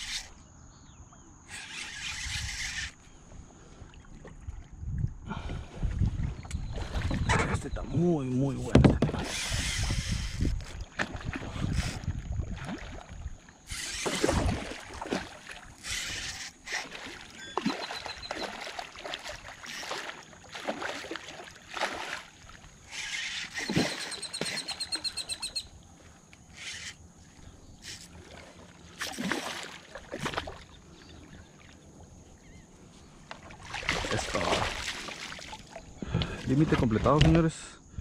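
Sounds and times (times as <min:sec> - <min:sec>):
fish thrashing and splashing: 0:09.1 - 0:24.8, 0:27.9 - 0:30.8, 0:33.4 - 0:37.1.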